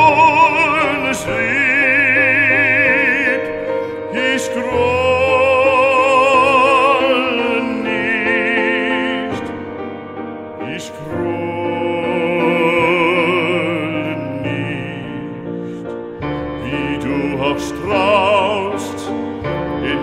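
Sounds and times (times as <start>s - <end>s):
operatic singing with accompaniment: 0.0s - 9.6s, 16.5s - 20.0s.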